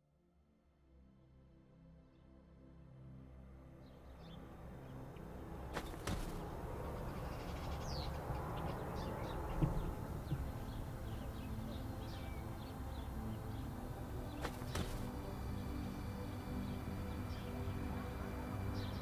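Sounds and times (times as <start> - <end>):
birds chirping: 3.8 - 19.0
thump: 14.4 - 15.1.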